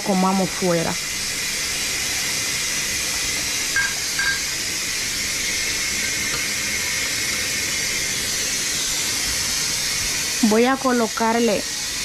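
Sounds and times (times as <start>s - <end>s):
tap running: 3.4s - 5.2s, 6.0s - 7.5s.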